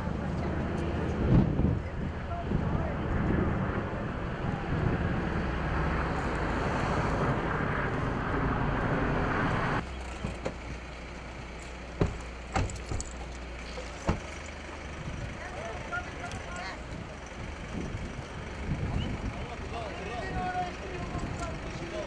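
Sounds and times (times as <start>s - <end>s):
wind buffeting microphone: 0.0s - 9.8s, 16.3s - 22.0s
sharp knocks: 12.0s - 13.1s.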